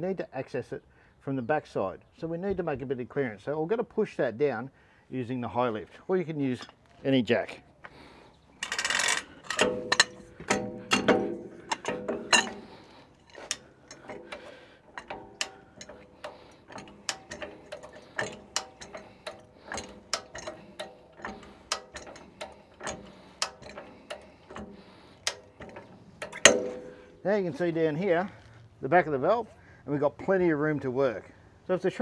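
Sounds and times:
jack pins clicking: 0:07.9 - 0:28.5
ringing metal clanks: 0:08.6 - 0:27.7.

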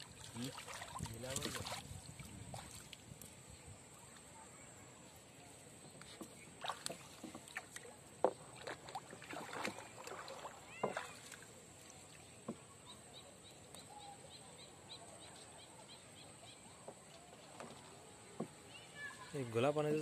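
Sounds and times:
water splashing and dripping: 0:00.0 - 0:03.4, 0:06.4 - 0:12.2.

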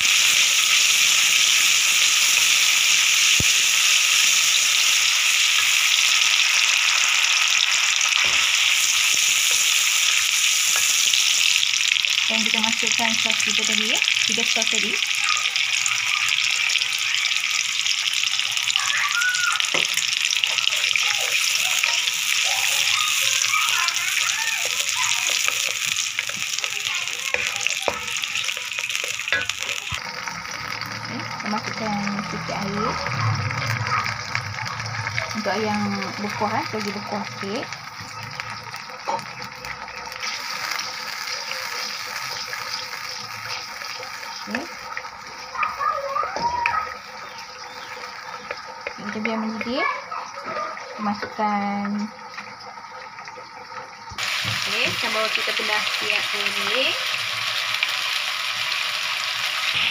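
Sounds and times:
sauce sizzling in hot oil: 0:00.0 - 0:59.9.

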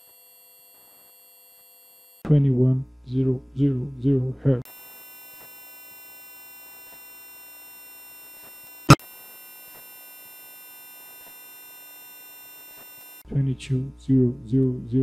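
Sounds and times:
faint buzz of thin tones: 0:04.7 - 0:13.2
high sine test tone: 0:04.7 - 0:13.2.

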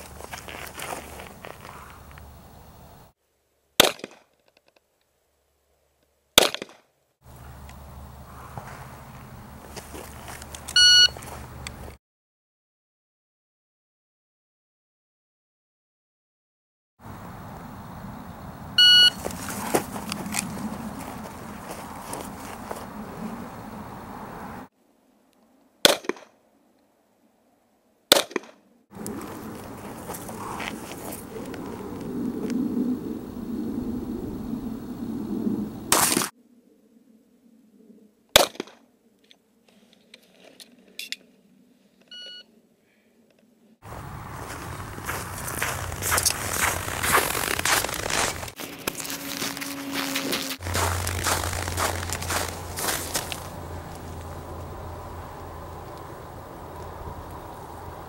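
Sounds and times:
handgun shots: 0:03.8 - 0:04.2, 0:06.4 - 0:06.8, 0:25.8 - 0:26.3, 0:28.1 - 0:28.5
pistol shots: 0:03.8 - 0:04.2.

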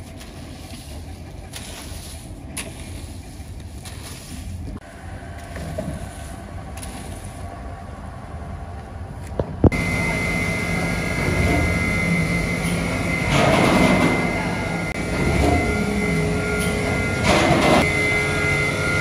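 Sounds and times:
factory machinery humming: 0:00.0 - 0:19.0
low rumbling noise: 0:00.0 - 0:19.0
high even whine: 0:04.8 - 0:19.0.

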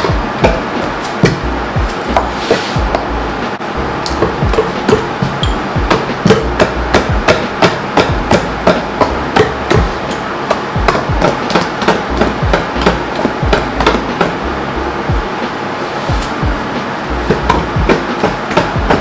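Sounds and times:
utensil beating batter in bowl: 0:04.0 - 0:14.4, 0:16.1 - 0:19.0.

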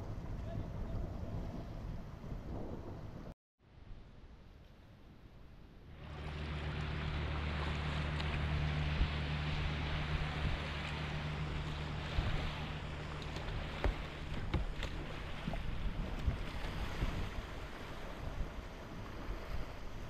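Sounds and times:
wind on microphone: 0:00.0 - 0:03.4, 0:05.9 - 0:20.0
river water rushing: 0:05.9 - 0:20.0
paddle knocks: 0:10.1 - 0:16.8.

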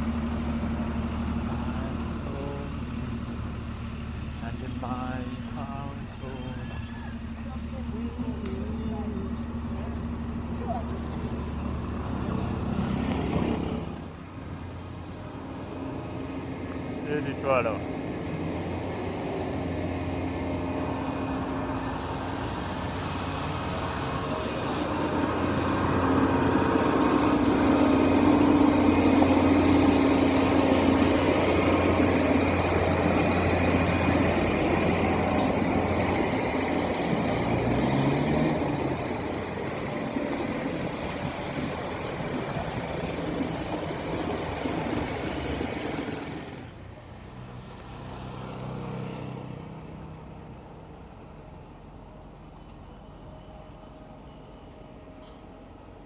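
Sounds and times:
motor vehicle engines running: 0:00.0 - 0:56.0
engine revving: 0:15.9 - 0:46.9.

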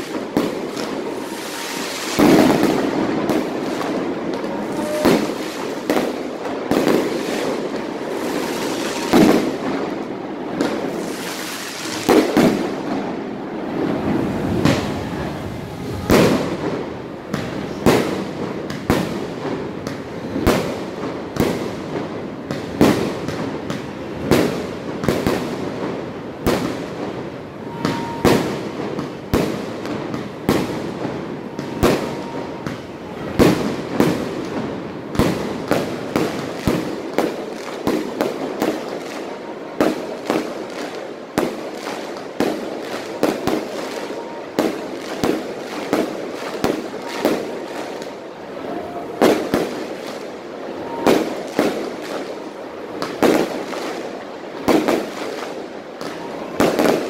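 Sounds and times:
fireworks bangs: 0:00.0 - 0:57.0
small firework pops: 0:17.3 - 0:25.4.

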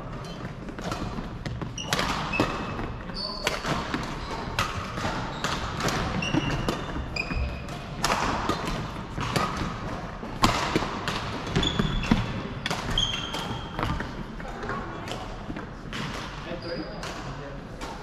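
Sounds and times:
shoes squeaking on wooden floor: 0:00.2 - 0:07.7, 0:11.4 - 0:14.3
racket hitting shuttlecock: 0:00.6 - 0:14.2.

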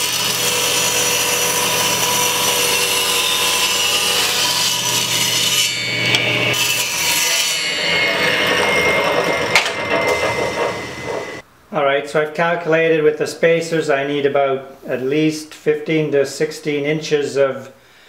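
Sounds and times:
saw blade cutting wood: 0:00.0 - 0:11.4
table saw motor whine: 0:00.0 - 0:11.4.

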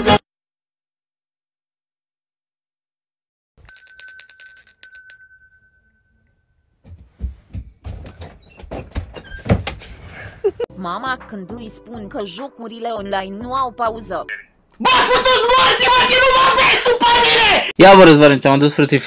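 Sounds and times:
small hand bell ringing: 0:03.6 - 0:06.0
rustling and knocking handling: 0:06.8 - 0:09.8.

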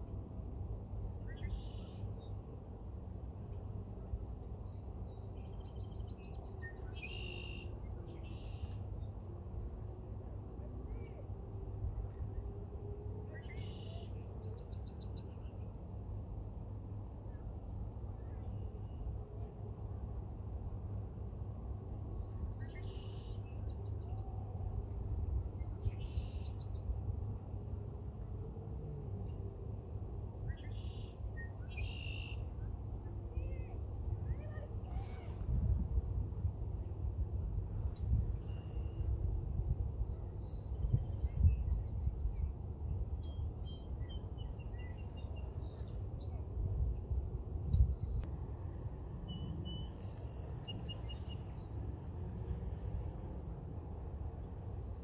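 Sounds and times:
insects chirping trill: 0:48.8 - 0:55.0.

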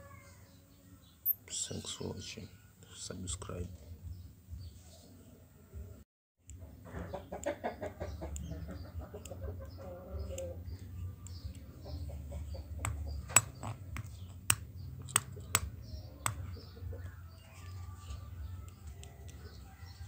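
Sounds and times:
chicken clucking: 0:06.6 - 0:13.2
metal padlock knocking on stone: 0:12.8 - 0:16.5.

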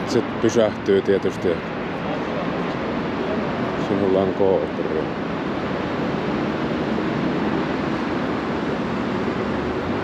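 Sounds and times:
rushing street noise: 0:00.0 - 0:10.0.

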